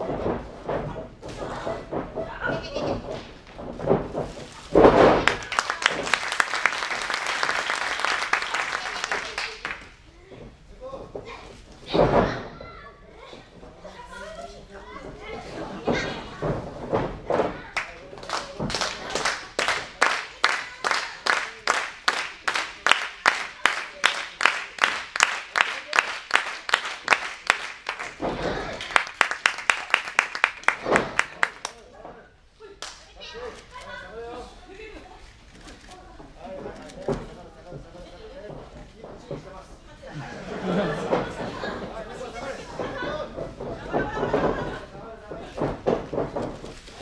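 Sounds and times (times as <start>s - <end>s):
audience clapping: 5.2s - 10.0s, 17.7s - 31.9s
body slamming onto ring: 11.8s - 12.6s.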